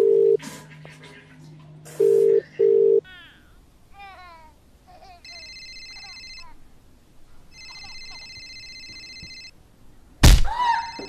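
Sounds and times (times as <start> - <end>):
phone ringing with trilling ringtone: 0.0 - 0.4, 2.0 - 3.0, 5.2 - 6.6, 7.5 - 9.6.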